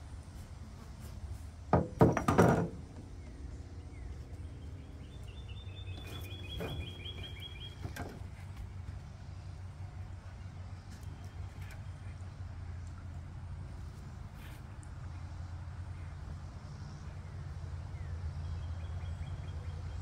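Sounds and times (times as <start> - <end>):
paddle knocking against boat: 1.7 - 3.0.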